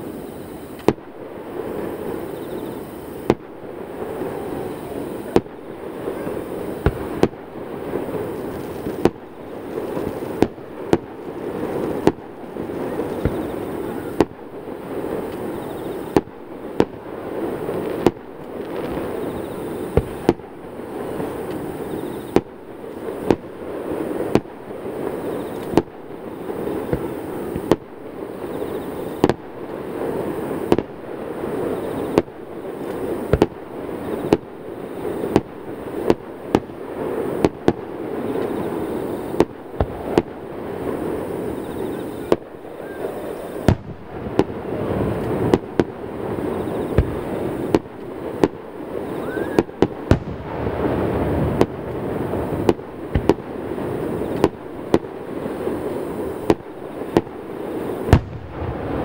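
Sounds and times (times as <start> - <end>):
firework shells bursting: 1.7 - 59.0
echoing rumble of booms: 43.6 - 47.8, 49.6 - 54.3, 58.1 - 59.0.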